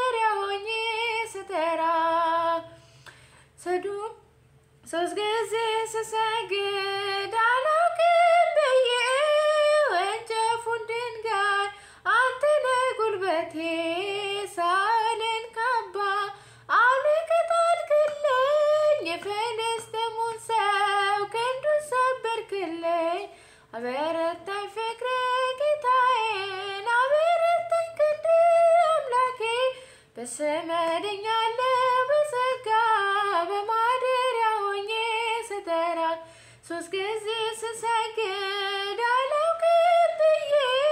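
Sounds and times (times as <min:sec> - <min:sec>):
singer breathing: 0:02.7 - 0:03.6, 0:11.8 - 0:12.1, 0:16.3 - 0:16.7, 0:23.3 - 0:23.7, 0:29.8 - 0:30.2, 0:36.2 - 0:36.7.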